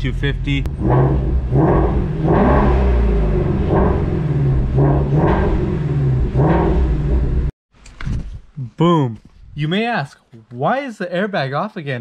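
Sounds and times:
car engine revving: 0.0s - 7.5s.

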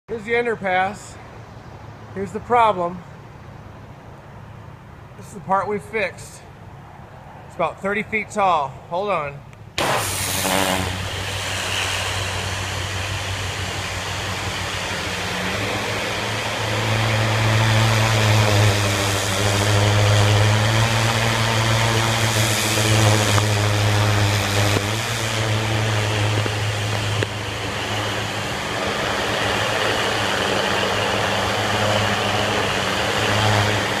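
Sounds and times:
pressure washer engine humming: 9.8s - 34.0s
water spray hissing: 9.8s - 34.0s.

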